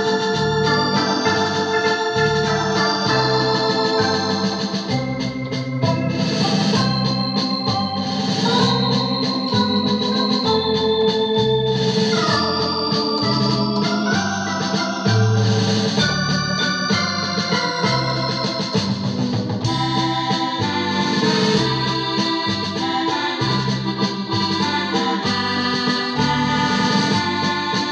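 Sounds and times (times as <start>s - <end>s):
bass notes: 0.0s - 27.9s
drum beat: 0.0s - 27.9s
keyboard organ tune: 0.0s - 27.9s.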